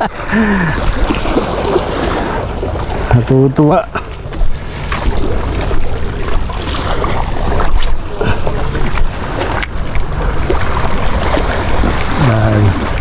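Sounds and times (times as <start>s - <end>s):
sea waves washing: 0.0s - 13.0s.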